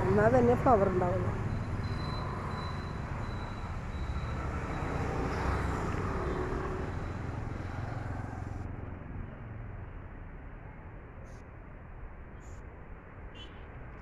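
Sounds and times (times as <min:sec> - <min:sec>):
motor vehicle passing: 0:00.0 - 0:09.1.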